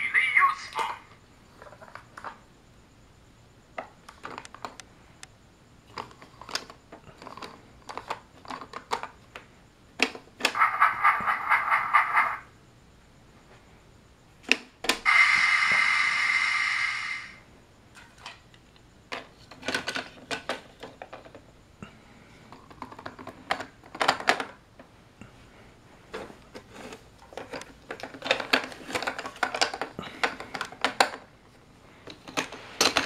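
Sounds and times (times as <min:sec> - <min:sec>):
loud hiss: 0:15.0 - 0:17.5
plastic toy pieces clicking: 0:27.4 - 0:31.2.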